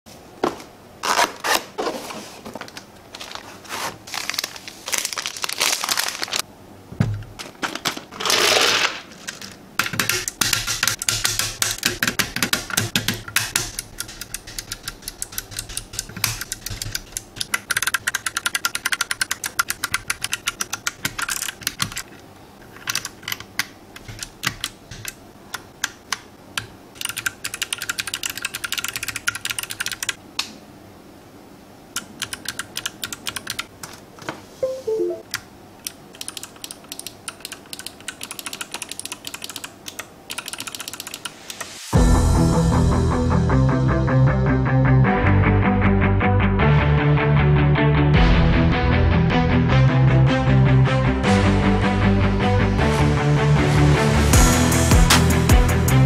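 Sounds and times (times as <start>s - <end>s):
rustling noise: 0.1s - 6.4s
mechanical keyboard key clicks: 35.8s - 41.3s.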